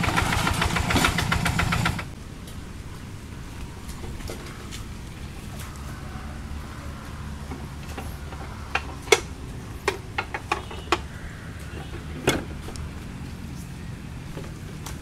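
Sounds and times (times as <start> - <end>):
metal clanks and knocks: 7.5 - 11.1.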